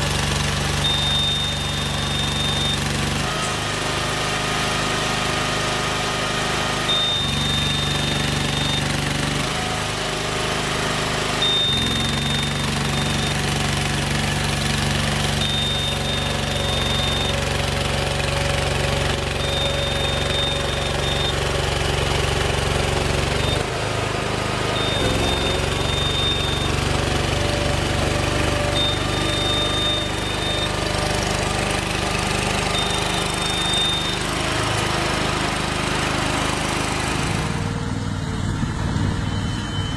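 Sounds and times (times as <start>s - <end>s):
crawler engine running under load: 0.0s - 39.9s
high steady tone: 0.8s - 2.9s, 15.3s - 17.4s, 28.7s - 30.8s.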